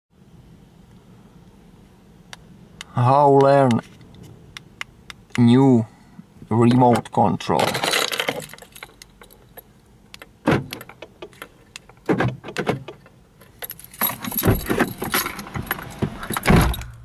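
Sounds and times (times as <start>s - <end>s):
car keys jangling: 7.6s - 17.0s.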